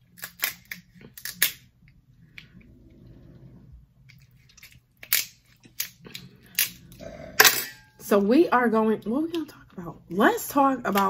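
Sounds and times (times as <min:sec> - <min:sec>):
crab shell cracking: 0:00.0 - 0:01.7, 0:04.4 - 0:06.9
soft chewing: 0:01.8 - 0:07.4.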